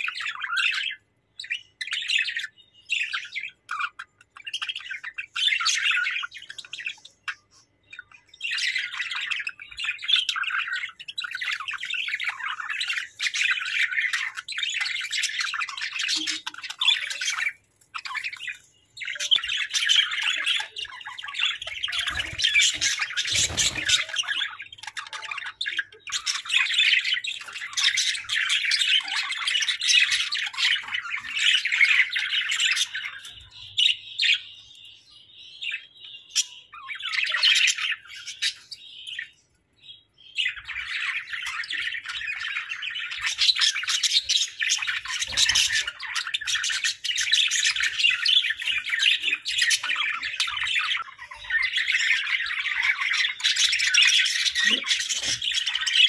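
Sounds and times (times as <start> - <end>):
budgerigars chirping and warbling: 0.0 - 56.0.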